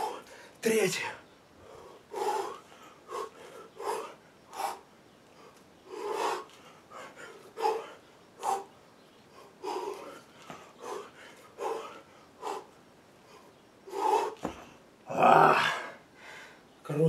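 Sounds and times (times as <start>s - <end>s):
man breathing forcefully: 1.6s - 4.9s, 5.9s - 8.7s, 9.3s - 14.8s.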